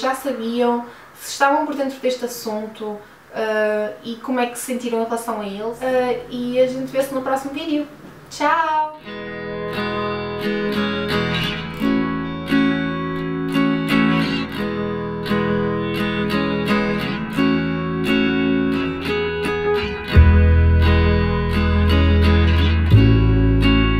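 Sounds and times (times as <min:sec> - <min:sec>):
guitar strumming: 0:09.0 - 0:23.9
deep bass: 0:19.9 - 0:23.9.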